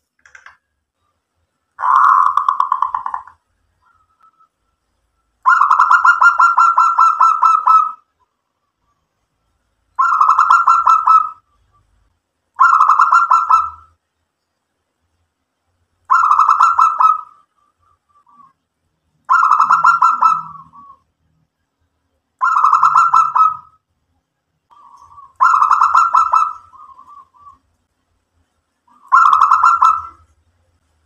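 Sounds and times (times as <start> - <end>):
dove cooing: 1.8 - 4.0, 5.4 - 8.0, 10.0 - 11.4, 12.6 - 13.9, 16.1 - 17.6, 19.3 - 21.0, 22.4 - 23.8, 24.7 - 27.7, 28.9 - 30.3.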